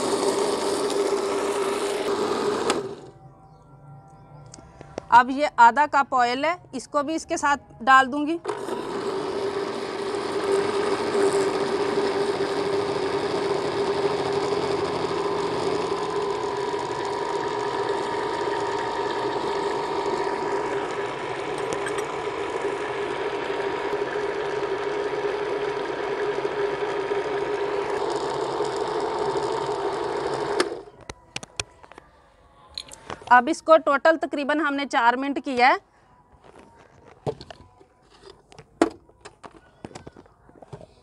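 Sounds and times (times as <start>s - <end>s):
electric blender running: 0.0s - 3.2s, 8.4s - 30.9s.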